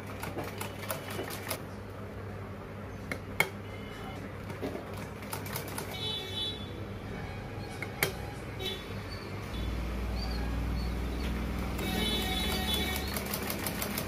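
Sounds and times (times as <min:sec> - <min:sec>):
sewing machine clicking: 0:00.0 - 0:01.7, 0:04.4 - 0:06.0, 0:11.6 - 0:14.0.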